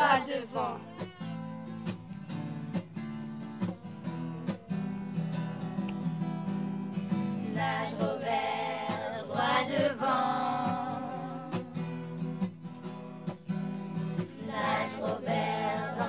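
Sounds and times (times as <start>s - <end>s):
people singing: 0.0s - 1.1s, 7.0s - 12.6s, 13.9s - 16.0s
acoustic guitar strumming: 0.0s - 16.0s.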